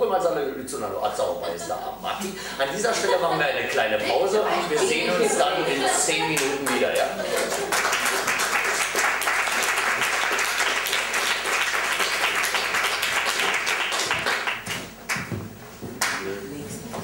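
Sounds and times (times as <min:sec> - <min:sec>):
audience applause: 0:04.9 - 0:15.3.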